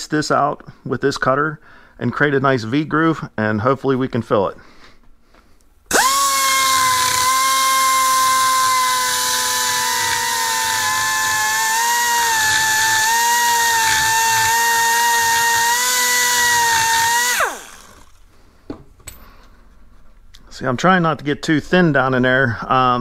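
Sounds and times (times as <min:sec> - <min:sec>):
die grinder whining: 0:05.9 - 0:18.2.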